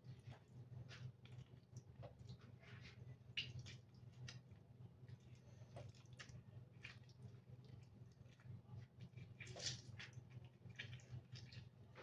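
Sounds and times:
juice dripping into bowl: 0:00.0 - 0:12.0
low steady hum: 0:00.0 - 0:12.0.

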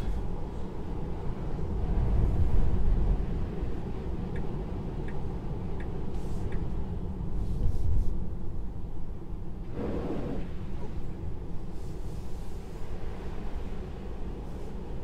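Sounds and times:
light ticks: 0:04.3 - 0:06.8
tyres rumbling on wet road: 0:09.6 - 0:11.3.

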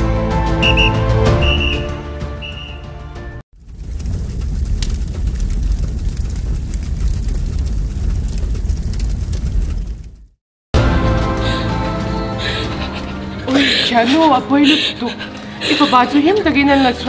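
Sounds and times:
fire crackling: 0:03.5 - 0:17.0
flames rushing: 0:03.6 - 0:10.4.

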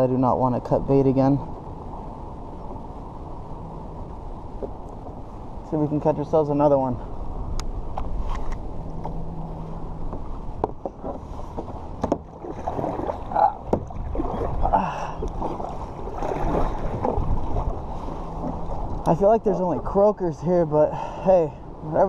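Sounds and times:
water sloshing and splashing: 0:08.3 - 0:20.0
paddle knocks: 0:10.1 - 0:19.0.

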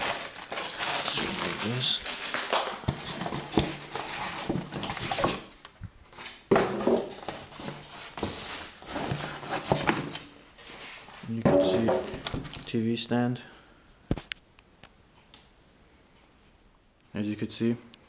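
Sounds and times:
styrofoam and plastic rubbing: 0:00.0 - 0:05.5.

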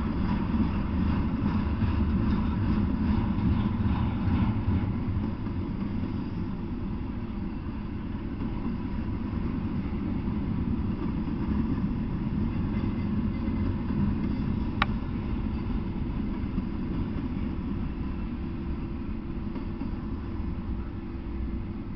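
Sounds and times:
freight train wheels rumbling: 0:00.0 - 0:21.9.

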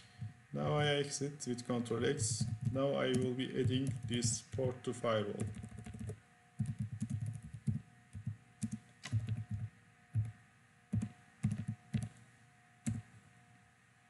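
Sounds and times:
typing on a keyboard: 0:02.2 - 0:04.8, 0:05.4 - 0:10.3, 0:10.9 - 0:12.1.

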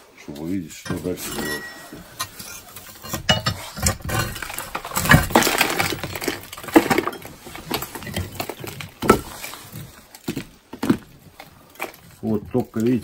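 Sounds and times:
crowbar and hammer scraping: 0:00.9 - 0:09.6
bricks crumbling and knocking: 0:00.9 - 0:13.0.

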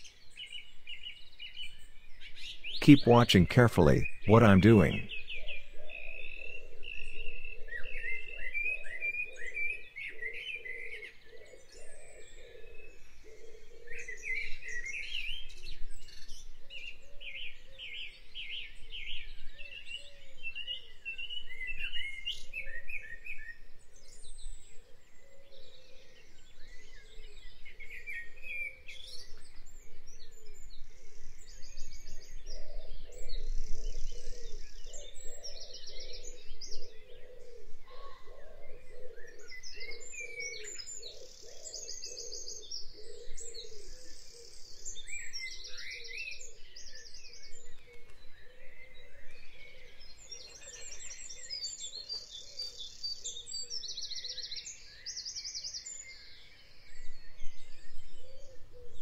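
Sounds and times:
birds chirping and singing: 0:24.1 - 0:59.0.

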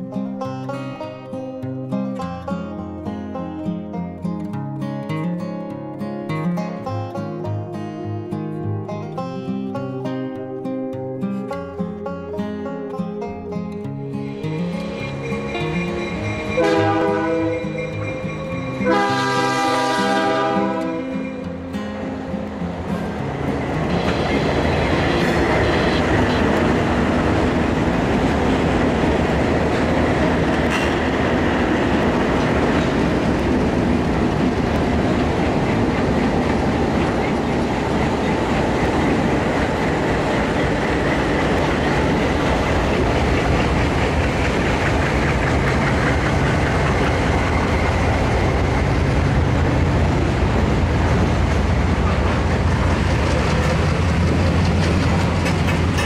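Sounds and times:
diesel locomotive engines running: 0:11.5 - 0:56.0
train wheels rolling over rails: 0:14.2 - 0:56.0
wheels clicking over rail joints: 0:26.1 - 0:56.0.

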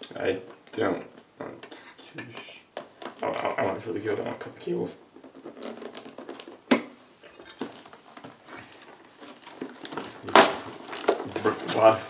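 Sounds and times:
cardboard flap scraping: 0:05.2 - 0:06.7
box taps and rustles: 0:05.2 - 0:12.0.

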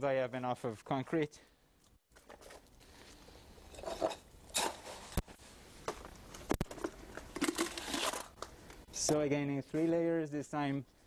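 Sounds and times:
scoop scraping through concrete: 0:03.6 - 0:05.2.

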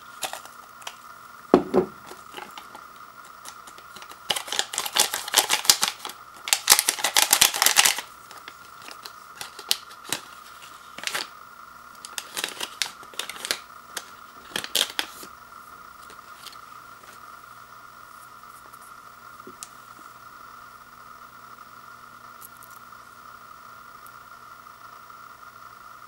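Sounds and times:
plastic packet crinkling: 0:01.8 - 0:11.3, 0:12.0 - 0:15.3.

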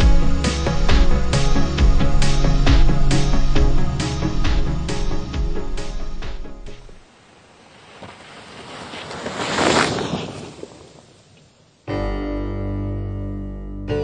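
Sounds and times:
music: 0:00.0 - 0:07.0, 0:11.9 - 0:14.0.

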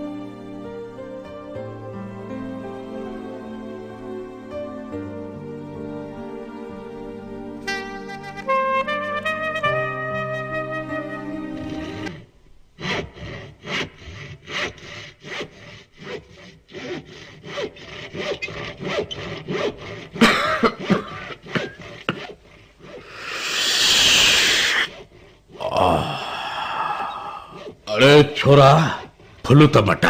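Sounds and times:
rhythmic rasping strokes: 0:07.1 - 0:25.9, 0:26.7 - 0:29.6
short throaty sounds: 0:22.2 - 0:28.0
loud hiss: 0:23.0 - 0:25.0.

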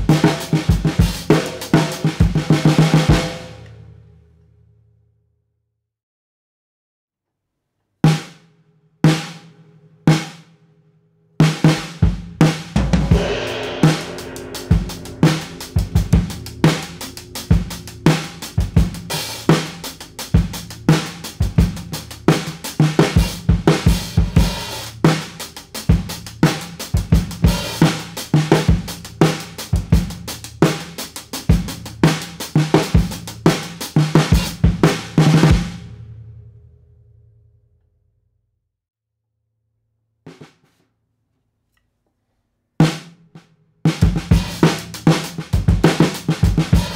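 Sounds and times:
snare drum strokes: 0:00.0 - 0:03.6, 0:11.7 - 0:25.4
drum kit groove: 0:00.0 - 0:03.7, 0:08.1 - 0:08.4, 0:11.4 - 0:36.0, 0:43.9 - 0:46.9.

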